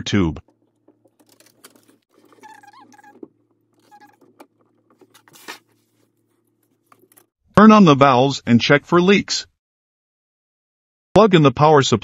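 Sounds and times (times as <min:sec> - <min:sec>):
plastic tubing clicks and rustles: 0:00.4 - 0:07.3
short squeaks: 0:00.4 - 0:07.3.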